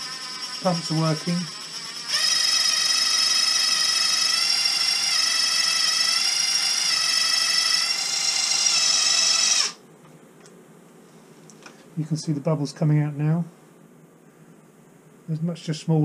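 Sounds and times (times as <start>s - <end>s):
cordless drill whining: 0.0s - 9.8s.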